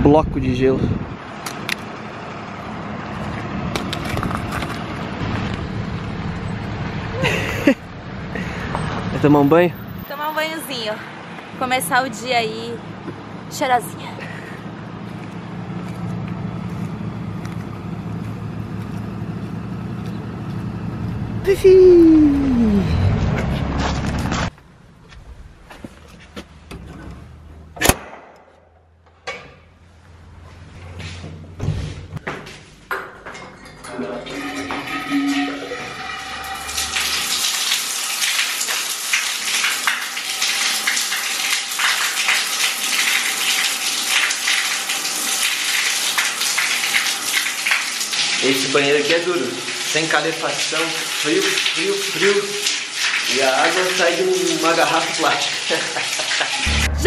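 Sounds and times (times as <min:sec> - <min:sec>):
vehicle engine running: 0:01.0 - 0:10.4, 0:11.3 - 0:25.8, 0:56.6 - 0:57.0.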